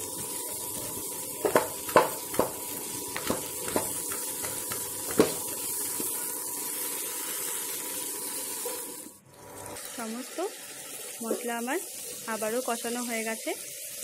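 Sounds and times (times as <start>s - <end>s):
masala sizzling: 0.0s - 14.0s
spatula knocking in a pan: 0.1s - 6.1s.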